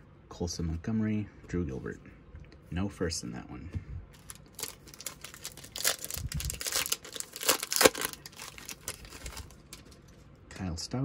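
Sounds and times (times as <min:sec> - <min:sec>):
foil wrapper crinkling and tearing: 0:04.2 - 0:10.1.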